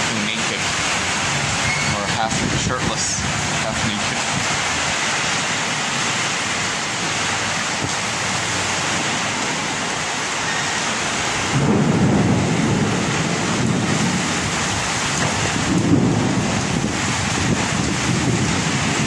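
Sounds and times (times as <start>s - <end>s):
heavy rain pouring: 0.0s - 19.0s
low rumble of thunder: 11.3s - 19.0s.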